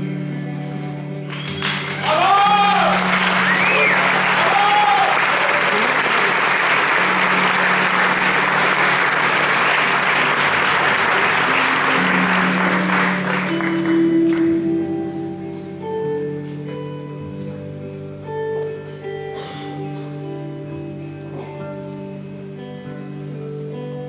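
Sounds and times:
electric guitar notes: 0:00.0 - 0:24.0
audience applauding: 0:01.2 - 0:14.7.

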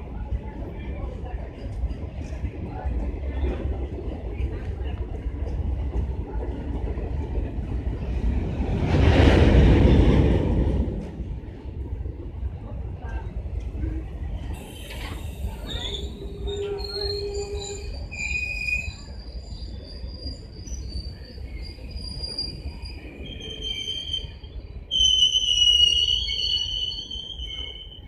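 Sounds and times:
train coaches rumbling: 0:00.0 - 0:28.0
high-pitched wheel squeals: 0:14.6 - 0:28.0.

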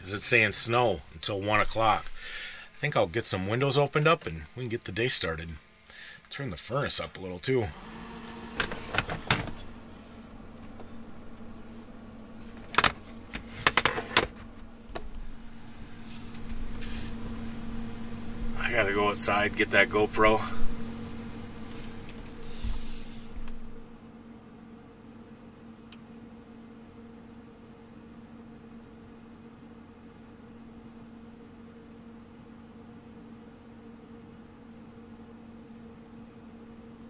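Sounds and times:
furnace humming: 0:00.0 - 0:37.0
windows clicking and sliding open: 0:07.8 - 0:09.8.

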